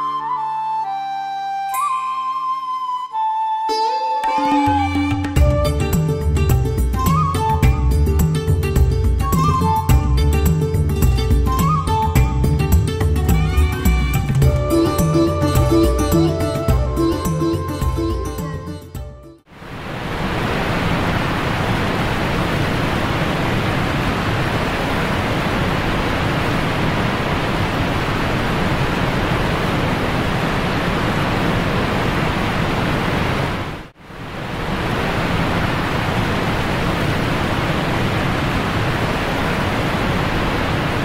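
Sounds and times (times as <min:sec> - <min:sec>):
waterfall rushing into pool: 0:19.5 - 0:41.0.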